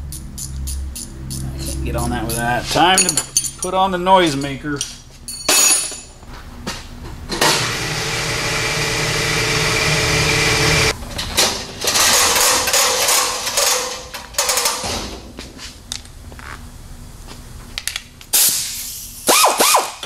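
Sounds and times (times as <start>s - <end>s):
pneumatic wrench spinning: 19.3s - 20.0s.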